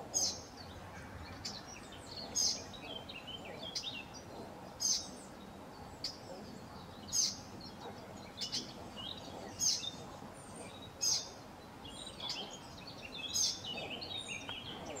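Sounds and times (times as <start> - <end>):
sharp bird calls: 0.0 - 15.0
soft bird chirps: 0.0 - 15.0
steady background noise: 0.0 - 15.0.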